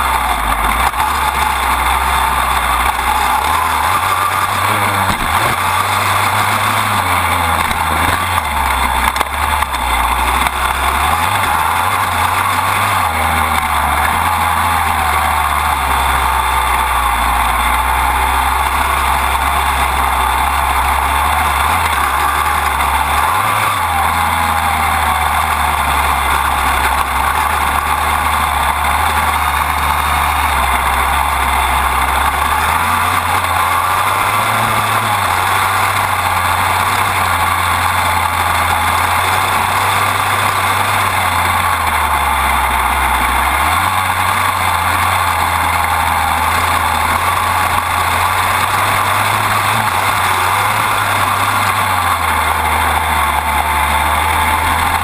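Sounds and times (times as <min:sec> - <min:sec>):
dirt bike engine running: 0:00.0 - 0:55.0.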